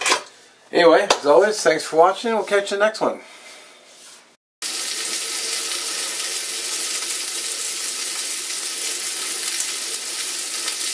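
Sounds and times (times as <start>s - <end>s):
steak sizzling in a skillet: 4.6s - 10.9s.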